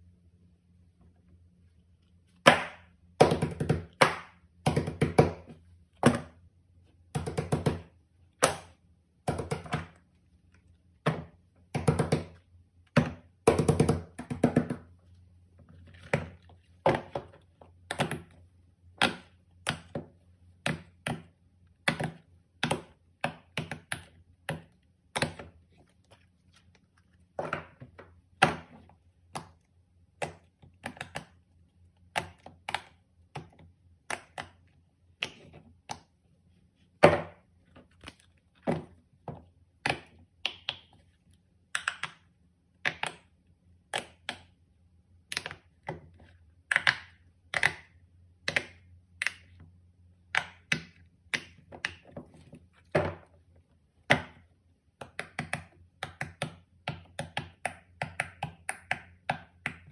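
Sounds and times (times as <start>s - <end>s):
faint low hum: 0.0s - 58.2s
toys tapping and thudding on table: 9.3s - 10.0s, 11.0s - 14.9s.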